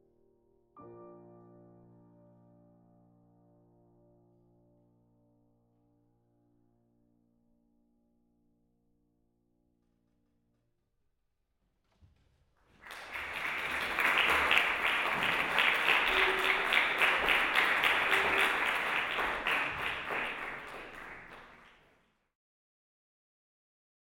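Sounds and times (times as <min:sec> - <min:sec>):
audience applauding: 0:12.7 - 0:22.1.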